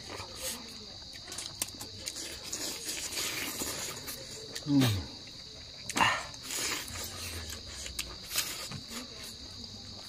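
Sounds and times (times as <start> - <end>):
night insects trilling: 0.0 - 10.0
people eating with hands: 0.0 - 10.0.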